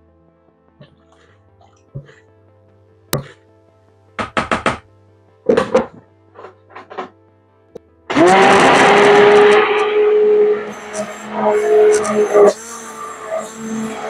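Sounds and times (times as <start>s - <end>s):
knocks and taps: 4.2s - 4.8s
stick blender motor whine: 8.1s - 14.0s.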